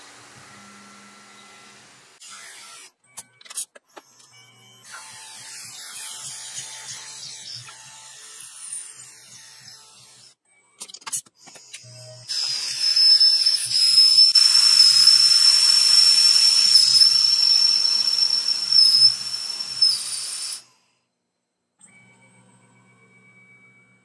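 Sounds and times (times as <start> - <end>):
mill spindle whining: 12.2 - 20.8.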